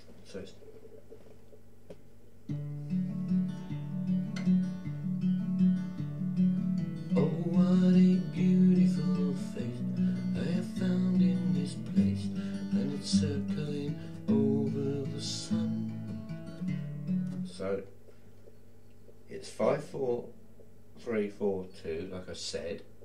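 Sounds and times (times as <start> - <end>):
fingerpicked acoustic guitar: 2.4 - 18.2.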